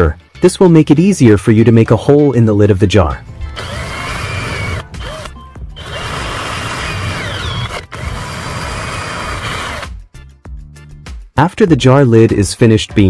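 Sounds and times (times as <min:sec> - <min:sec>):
electric drill boring through plastic: 0:03.5 - 0:09.9.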